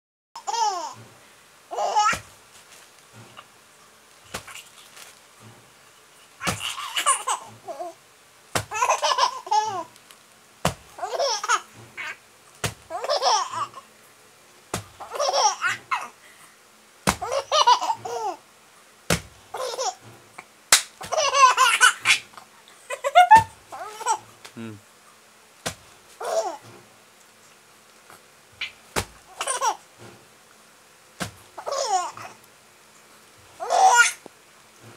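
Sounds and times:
baby laughing: 0.4s - 1.0s, 1.7s - 2.3s, 6.4s - 8.0s, 8.7s - 9.9s, 11.0s - 12.2s, 12.9s - 13.9s, 15.0s - 16.2s, 17.2s - 18.4s, 19.5s - 20.0s, 21.0s - 24.3s, 26.2s - 26.6s, 28.6s - 29.9s, 31.6s - 32.4s, 33.6s - 34.2s.

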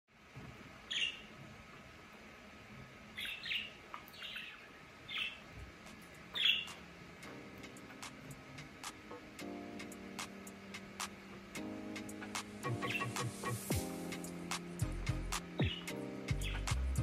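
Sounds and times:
budgerigars chirping: 0.9s - 1.3s, 3.2s - 5.4s, 6.3s - 6.8s, 12.7s - 13.5s, 15.6s - 16.7s.

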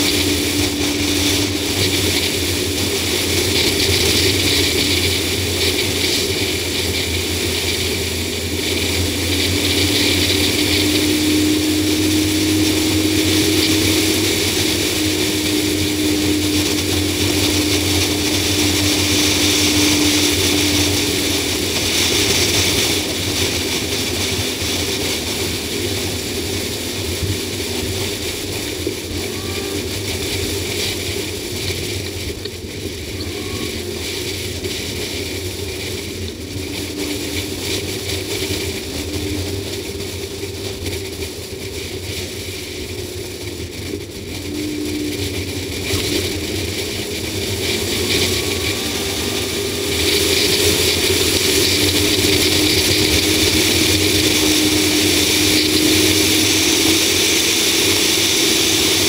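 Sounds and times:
steady tone: 0.0s - 30.6s, 43.4s - 59.0s
low hum: 0.0s - 59.0s
wind and road noise: 0.0s - 59.0s.

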